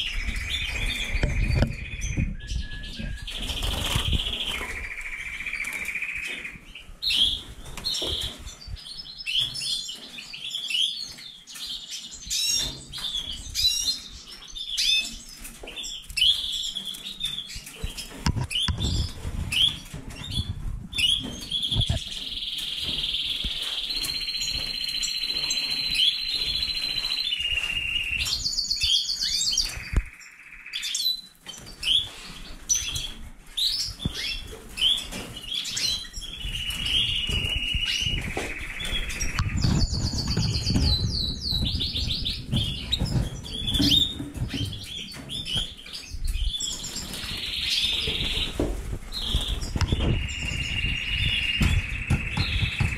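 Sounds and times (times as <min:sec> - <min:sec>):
bird singing long song: 0:00.0 - 0:32.1, 0:32.7 - 0:52.9.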